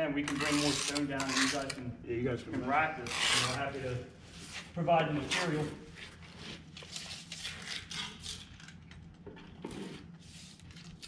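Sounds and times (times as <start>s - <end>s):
tape measure being drawn out: 0.3s - 1.8s
tools scraping and rattling on stone: 0.3s - 1.8s.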